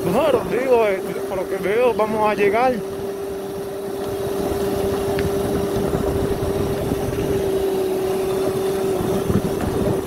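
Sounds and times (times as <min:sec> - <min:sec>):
electric motorbike whine: 0:00.0 - 0:10.0
road rumble: 0:00.0 - 0:10.0
wind noise: 0:03.6 - 0:10.0.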